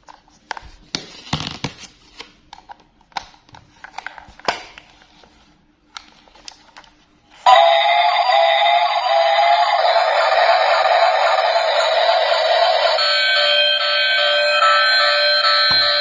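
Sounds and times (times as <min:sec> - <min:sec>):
toy speaker playing electronic tune: 0:07.5 - 0:16.0.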